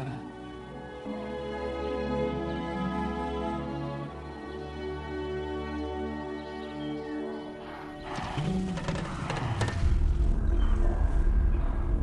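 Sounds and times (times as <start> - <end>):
soft orchestral music: 0.0 - 8.0.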